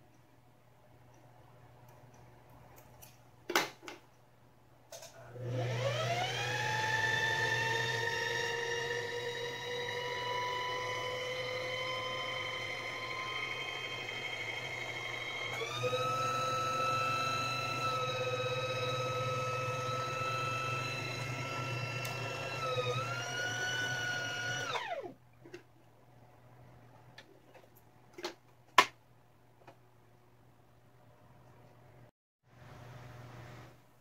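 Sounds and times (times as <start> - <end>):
sewing machine motor whine: 5.2 - 25.2.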